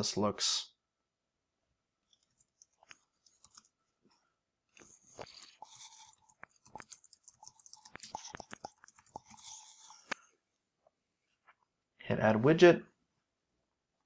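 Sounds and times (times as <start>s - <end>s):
computer keyboard typing: 2.1s - 3.7s, 5.6s - 10.1s.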